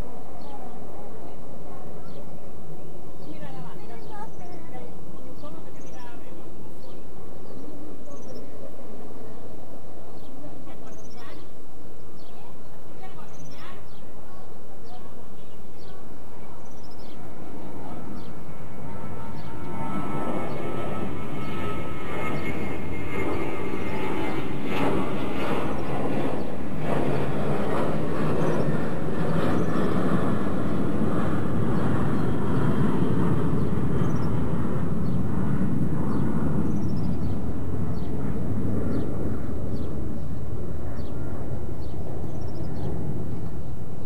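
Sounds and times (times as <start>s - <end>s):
birds chirping: 0.0s - 44.0s
steady low rumble: 0.0s - 44.0s.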